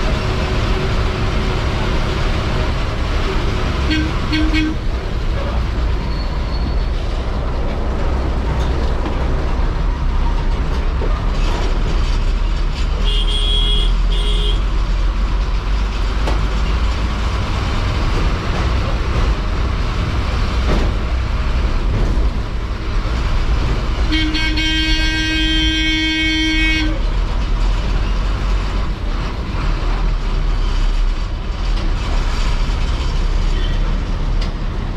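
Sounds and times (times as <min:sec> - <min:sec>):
bus diesel engine rumbling: 0:00.0 - 0:34.9
vehicle horn tooting: 0:03.9 - 0:04.8, 0:13.0 - 0:14.6, 0:24.1 - 0:27.0.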